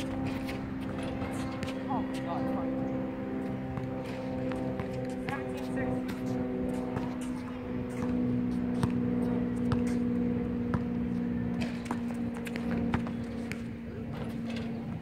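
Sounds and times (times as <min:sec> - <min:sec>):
steady low hum: 0:00.0 - 0:15.0
basketball bouncing on hard court: 0:03.7 - 0:06.2, 0:07.9 - 0:14.4.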